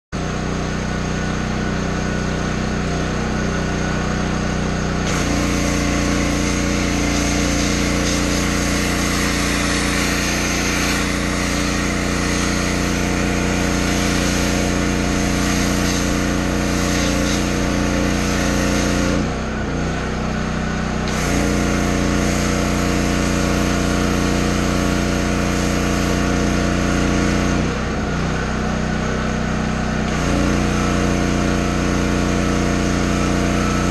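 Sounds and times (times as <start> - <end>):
pressure washer running: 0.2 - 33.9
foam cannon spraying hiss: 5.1 - 19.3, 21.1 - 27.6.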